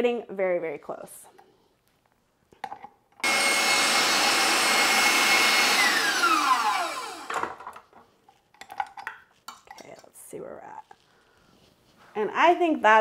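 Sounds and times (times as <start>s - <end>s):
stand mixer motor whine: 3.2s - 7.5s.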